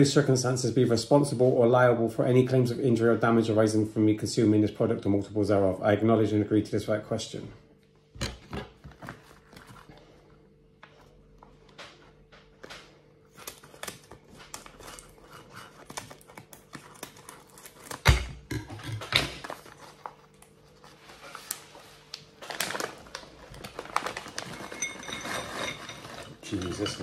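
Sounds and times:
plastic packaging crinkling: 8.9s - 10.2s, 13.2s - 18.2s, 19.0s - 27.0s
scissors cutting plastic: 13.3s - 18.2s.

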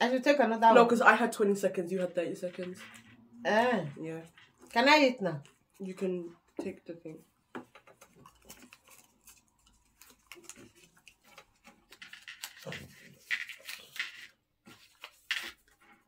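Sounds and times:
chewing and eating sounds: 7.9s - 13.9s.

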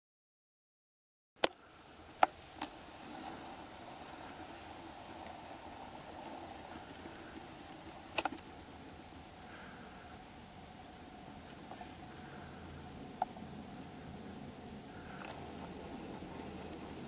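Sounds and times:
faint background hiss: 1.4s - 17.0s
thin high whine: 1.4s - 17.0s
sharp clicks: 8.1s - 8.5s.

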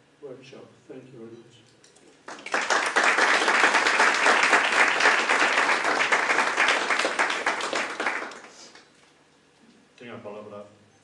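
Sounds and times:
audience applauding: 2.2s - 8.9s.

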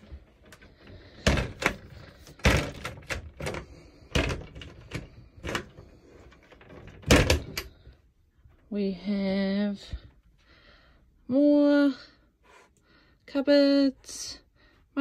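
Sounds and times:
wooden door knocks and clicks: 6.6s - 7.8s.

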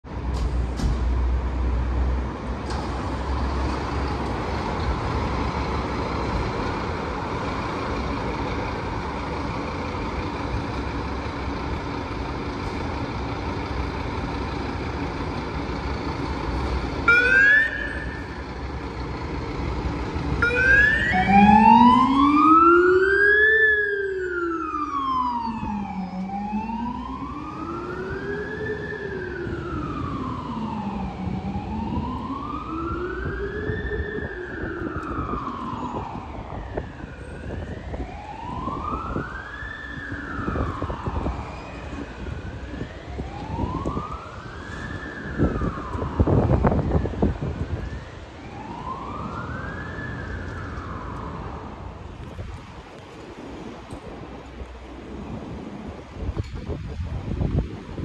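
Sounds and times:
engine and street rumble: 0.0s - 58.0s
fire engine siren wailing: 2.8s - 54.3s
low-pitched siren sweeping: 16.3s - 52.5s.

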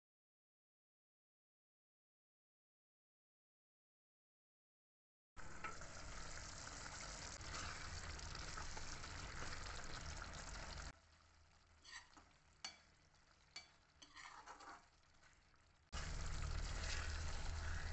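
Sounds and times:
gravy sizzling and bubbling: 5.4s - 17.9s
spatula scraping a pan: 7.4s - 8.2s, 11.8s - 12.9s, 13.6s - 15.0s, 16.4s - 17.9s.

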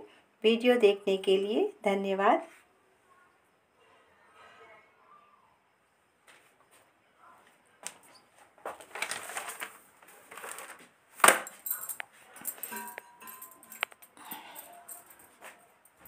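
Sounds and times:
handling clicks and rustling: 7.8s - 16.0s.

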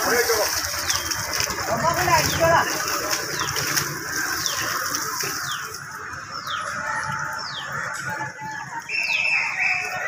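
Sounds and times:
running water: 0.0s - 10.0s
bird whistling: 8.9s - 10.0s.

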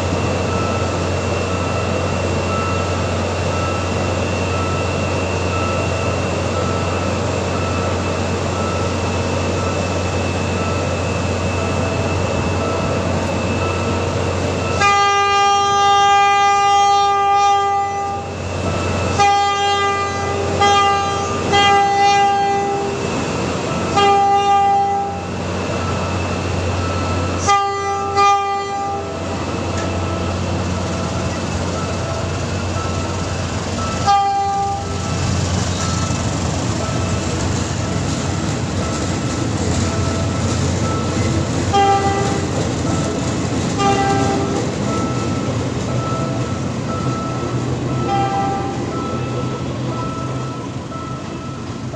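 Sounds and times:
diesel train engines droning: 0.0s - 51.9s
train horn blasts: 14.7s - 18.3s, 19.1s - 23.0s, 23.9s - 25.3s, 27.4s - 29.2s, 34.0s - 35.1s, 41.7s - 42.5s, 43.8s - 44.7s, 48.0s - 48.9s.

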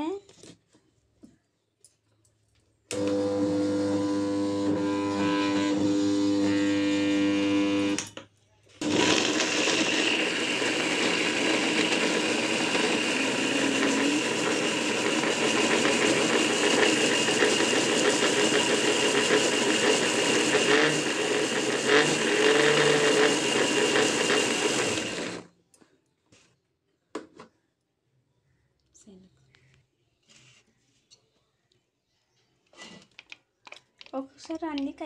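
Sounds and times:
mixer grinder motor whine: 2.9s - 8.0s, 8.8s - 25.5s.

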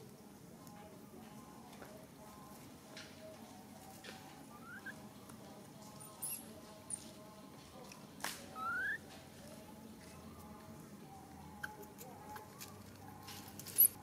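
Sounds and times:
baby monkey squeaking: 4.5s - 5.0s, 6.1s - 6.5s, 8.5s - 9.0s
high chirp: 4.5s - 5.0s, 8.6s - 9.0s.

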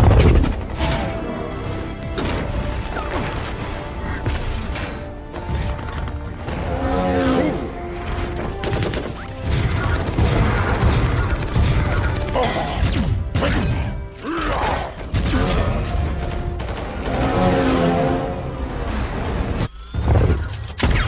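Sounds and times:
film score music: 0.0s - 21.0s
machine-gun fire: 8.6s - 12.4s.

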